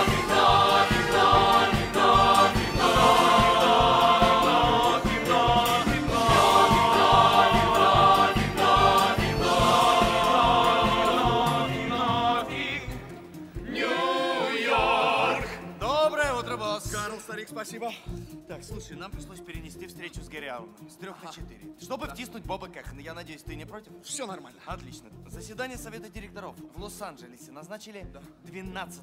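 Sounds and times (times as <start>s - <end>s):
full band playing: 0.0s - 12.3s
ensemble singing in chorus: 0.0s - 15.8s.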